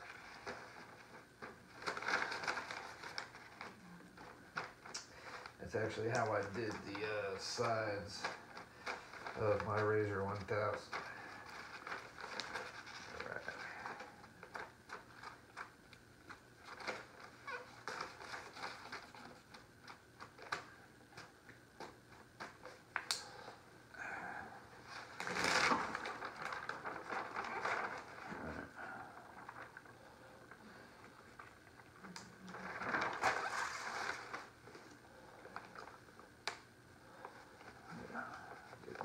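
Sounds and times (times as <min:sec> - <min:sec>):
squeegee rubbing on vinyl film: 0:30.6 - 0:34.7.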